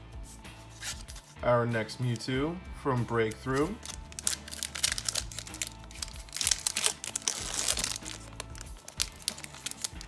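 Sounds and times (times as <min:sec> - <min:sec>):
background music: 0:00.0 - 0:10.0
foil wrapper crinkling and tearing: 0:03.5 - 0:10.0.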